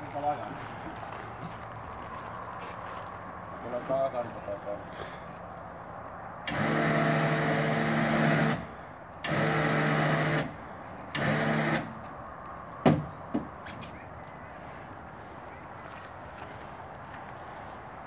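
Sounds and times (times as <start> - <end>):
winch motor running: 6.5 - 10.5.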